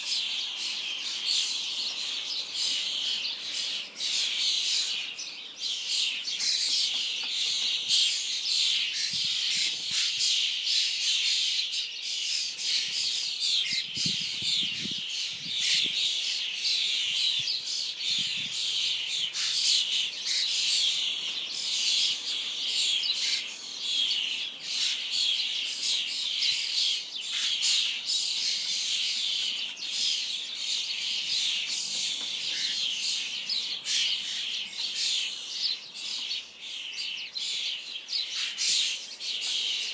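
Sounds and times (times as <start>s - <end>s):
starlings chattering and squawking: 0.0s - 39.9s.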